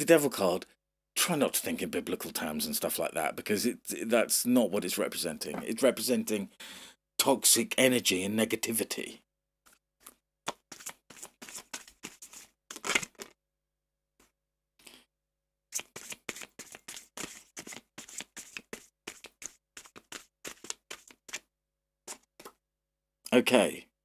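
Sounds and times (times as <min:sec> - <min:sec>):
cards being shuffled: 0:09.7 - 0:13.3, 0:15.8 - 0:21.4, 0:22.1 - 0:22.6.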